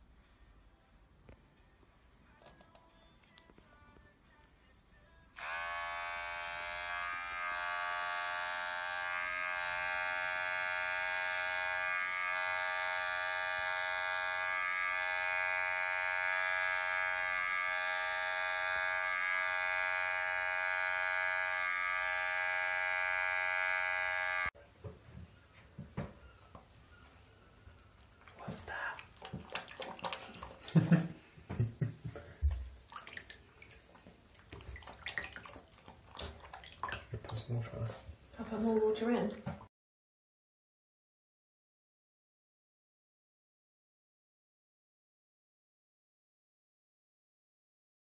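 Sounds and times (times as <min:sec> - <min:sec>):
electric hair clipper buzzing: 0:05.4 - 0:24.6.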